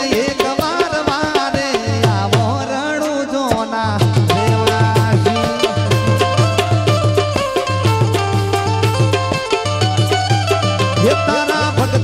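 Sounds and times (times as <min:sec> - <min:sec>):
man singing: 0:00.0 - 0:07.9, 0:10.7 - 0:12.0
harmonium: 0:00.0 - 0:12.0
hand drum strokes: 0:03.5 - 0:12.0.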